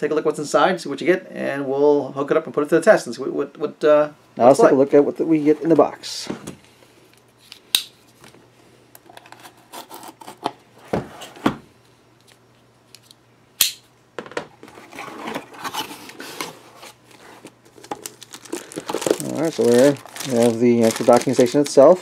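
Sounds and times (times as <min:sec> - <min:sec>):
cardboard scraping and rustling: 0:14.6 - 0:21.6.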